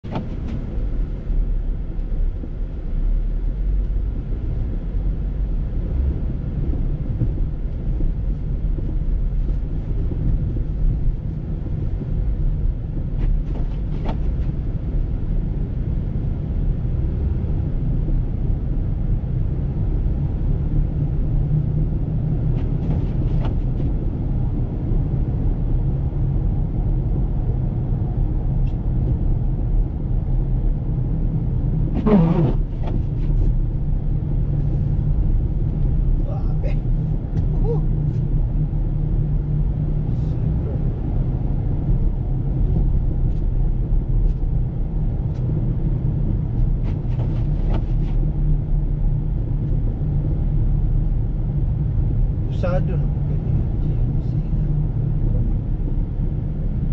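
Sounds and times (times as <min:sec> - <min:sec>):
car driving on snowy road: 0:00.0 - 0:56.9
car engine: 0:00.0 - 0:56.9
tyre noise: 0:32.0 - 0:33.5.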